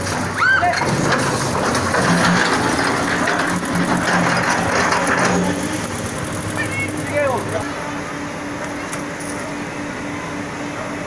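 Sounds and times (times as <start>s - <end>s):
metal clattering and grinding: 0.0s - 7.6s
excavator diesel engine running: 0.0s - 11.0s.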